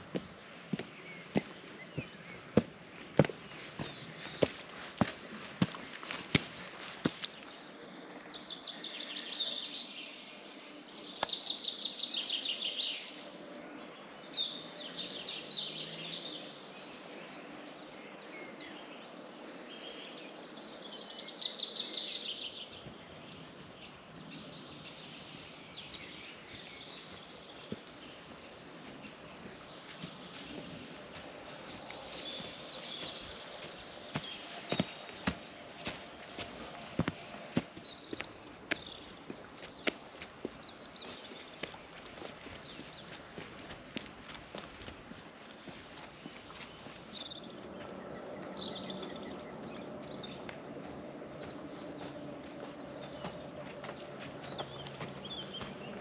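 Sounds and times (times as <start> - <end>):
footsteps: 0.0 - 7.4, 26.5 - 40.6, 41.4 - 47.1, 50.4 - 56.0
outdoor background noise: 0.0 - 56.0.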